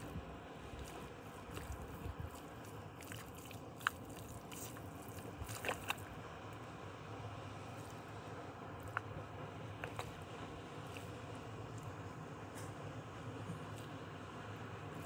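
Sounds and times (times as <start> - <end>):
wet clay squelching: 0.0 - 6.2, 8.8 - 12.2.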